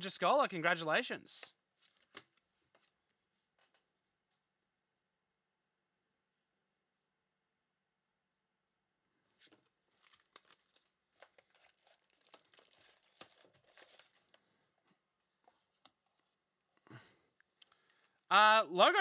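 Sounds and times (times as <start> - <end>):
plastic wrapping crinkling: 9.4 - 14.5.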